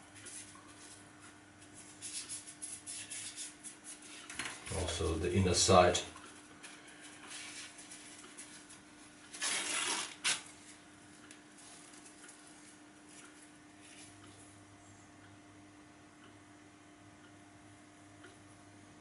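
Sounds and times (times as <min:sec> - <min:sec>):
faint steady hum: 0:00.0 - 0:19.0
paper towel rustling and tearing: 0:07.0 - 0:14.1.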